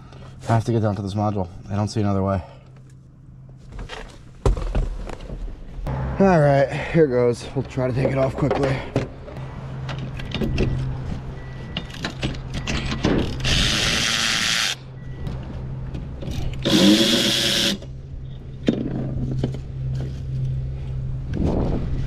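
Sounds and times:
power tool running: 13.4 - 14.8, 16.6 - 17.9
steady low hum: 14.7 - 22.0.

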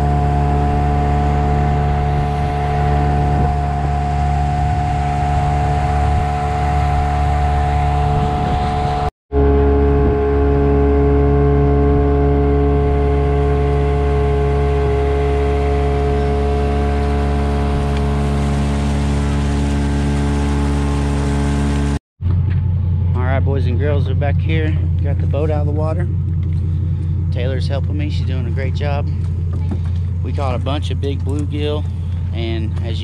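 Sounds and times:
water rushing along hull: 0.0 - 22.0, 23.8 - 33.0
outboard motor running: 0.0 - 33.0.

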